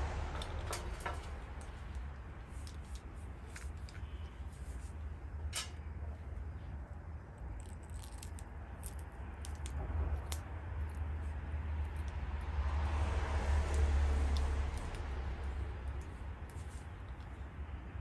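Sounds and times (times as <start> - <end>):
hands handling wires clicking: 0.3 - 4.4, 7.5 - 11.1.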